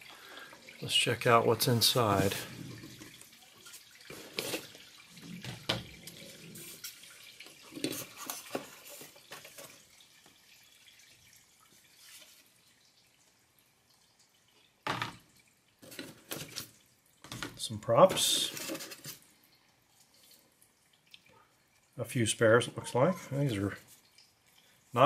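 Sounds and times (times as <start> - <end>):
light taps and scrapes: 7.7 - 9.8, 18.1 - 19.2.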